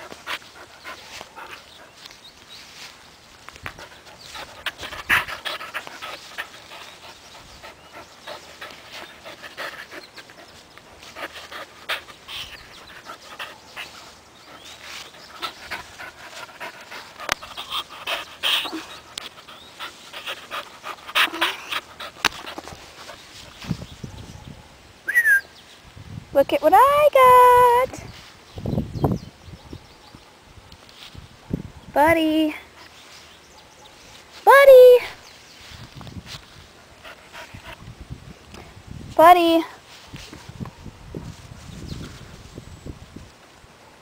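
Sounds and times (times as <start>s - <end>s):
puppy panting: 0.0s - 2.1s, 3.7s - 23.7s, 36.8s - 37.9s
rustles: 0.0s - 44.0s.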